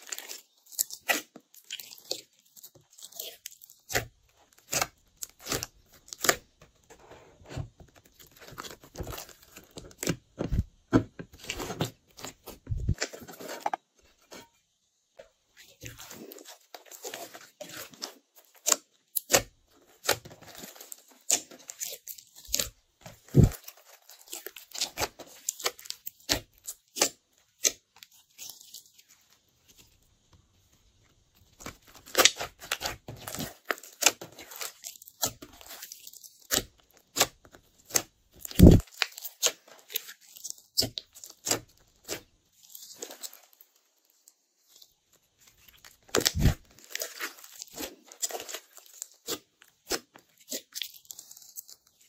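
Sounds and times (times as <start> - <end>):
slime squished by hand: 46.0 - 52.0.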